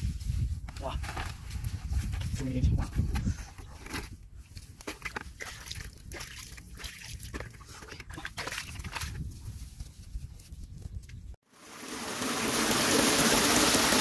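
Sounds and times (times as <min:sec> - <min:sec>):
water sloshing in plastic bucket: 0:04.8 - 0:09.2.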